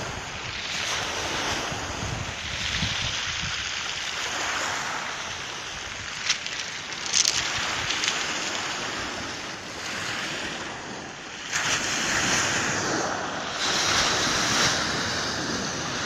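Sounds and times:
waves washing over pebble beach: 0.0s - 16.0s.

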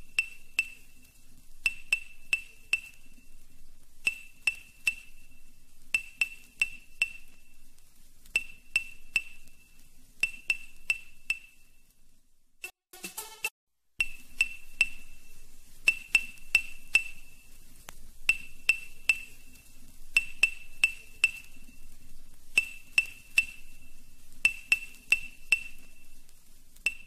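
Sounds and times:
high ringing pings: 8.4s - 9.6s, 14.0s - 17.6s, 22.6s - 26.2s.

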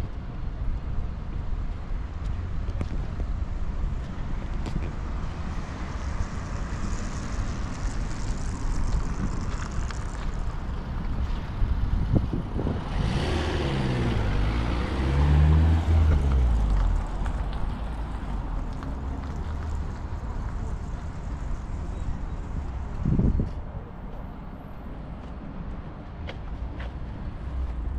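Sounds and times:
road traffic: 0.0s - 27.9s
wind on microphone: 6.6s - 15.1s, 21.9s - 23.8s
heavy vehicle passing: 12.1s - 21.9s.

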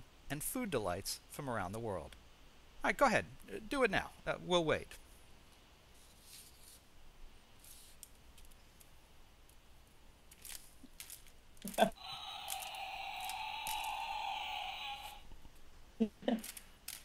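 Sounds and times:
objects clicking and rustling: 10.3s - 11.9s, 16.4s - 17.0s.

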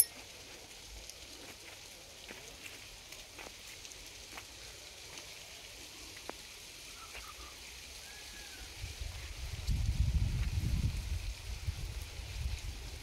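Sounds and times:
wind rustling palm fronds: 0.0s - 13.0s
wind buffeting microphone: 8.8s - 13.0s.

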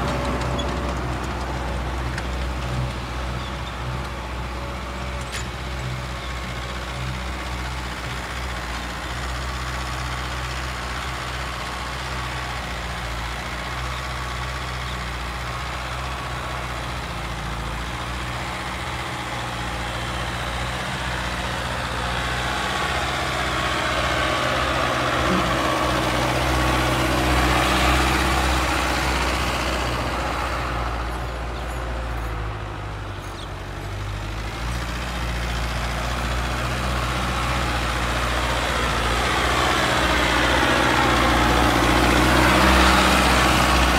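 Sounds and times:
tractor diesel engine under load: 0.0s - 43.9s.

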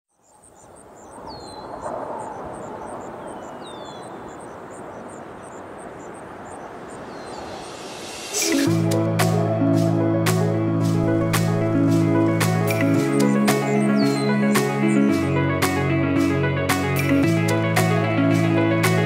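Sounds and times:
steady background rush: 1.6s - 19.0s
music with sustained notes: 7.2s - 19.0s.

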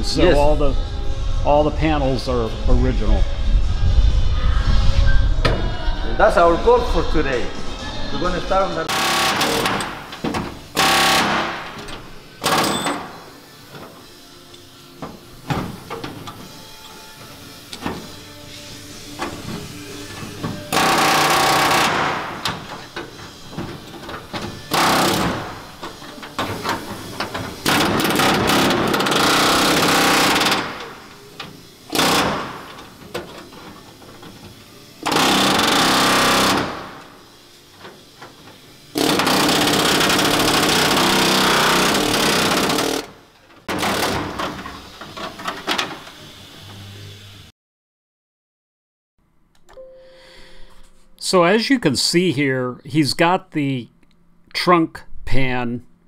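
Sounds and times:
air tool cutting sheet steel: 8.9s - 14.1s, 15.8s - 47.4s.

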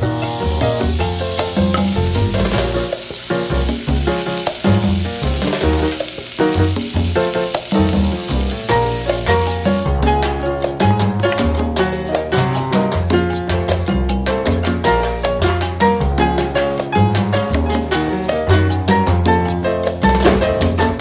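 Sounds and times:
fat sizzling in a pot: 0.0s - 10.0s
latin music with steady beat: 0.0s - 21.0s.

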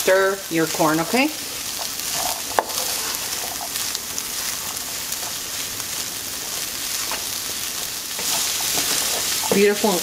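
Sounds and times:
corn kernels sizzling in oil: 0.0s - 10.0s
wooden spatula stirring: 1.5s - 10.0s.

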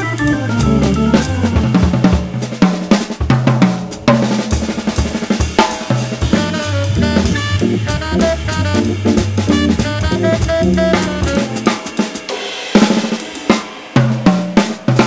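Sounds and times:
held organ chords: 0.0s - 2.1s, 6.2s - 11.6s
organ bass notes: 0.0s - 2.6s, 5.9s - 11.7s
drum kit playing: 0.0s - 15.0s.

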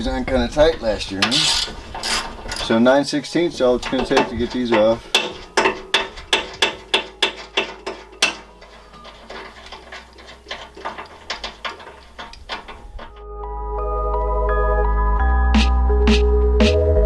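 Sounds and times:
music: 5.1s - 10.2s, 12.8s - 17.0s.

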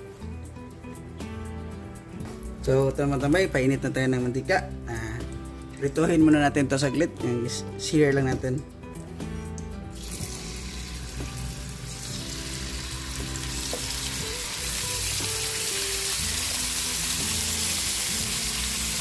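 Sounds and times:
chicken sizzling in hot oil: 10.0s - 19.0s.

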